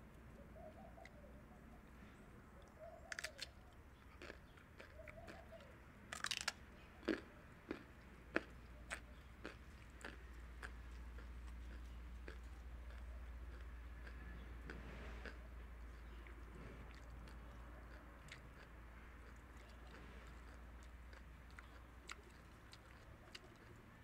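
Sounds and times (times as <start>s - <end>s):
rabbits chewing lettuce: 6.2s - 24.0s.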